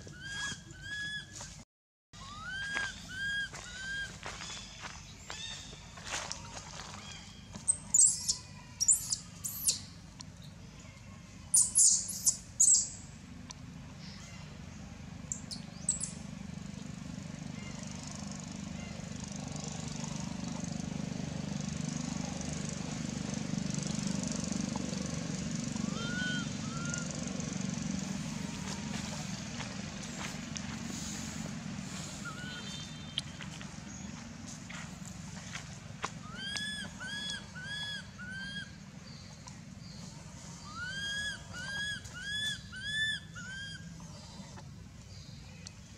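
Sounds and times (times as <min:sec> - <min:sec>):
baby monkey squealing: 0:00.0 - 0:01.3, 0:02.2 - 0:04.2, 0:07.7 - 0:09.9, 0:11.5 - 0:12.9, 0:25.9 - 0:27.0, 0:32.2 - 0:32.8, 0:36.2 - 0:38.8, 0:40.6 - 0:43.9
distant engine humming: 0:02.2 - 0:45.9
whistled call: 0:25.8 - 0:27.1, 0:32.2 - 0:33.1.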